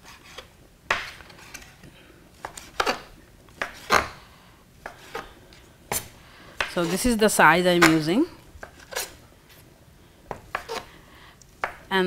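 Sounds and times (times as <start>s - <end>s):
knife chopping on wooden board: 2.4s - 4.2s, 7.8s - 9.1s, 10.3s - 10.9s, 11.6s - 11.9s.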